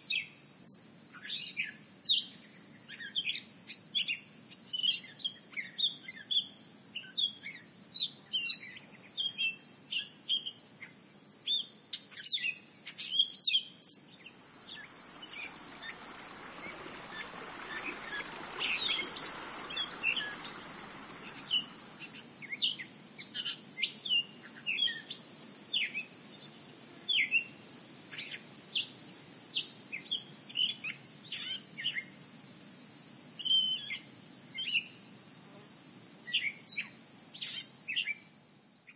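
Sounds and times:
high-pitched insect trill: 0:00.0 - 0:38.9
bird chirps: 0:12.2 - 0:25.1
soft rushing noise: 0:14.2 - 0:22.7.

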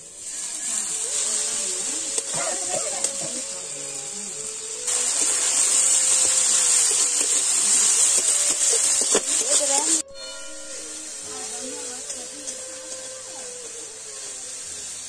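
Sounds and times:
meat sizzling in hot oil: 0:00.0 - 0:15.0
metal spatula scraping: 0:04.9 - 0:14.3.

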